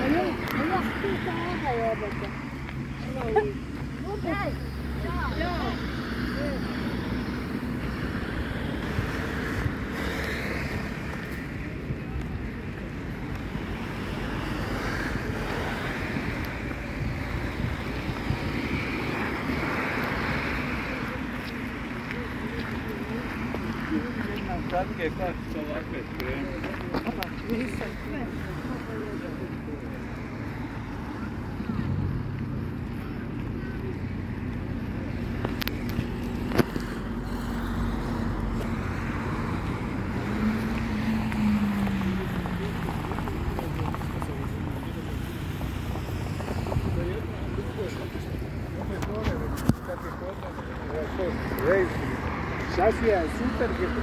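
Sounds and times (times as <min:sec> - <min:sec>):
road traffic: 0:00.0 - 0:54.0
vehicle passing: 0:00.0 - 0:54.0
wind on microphone: 0:14.7 - 0:21.6.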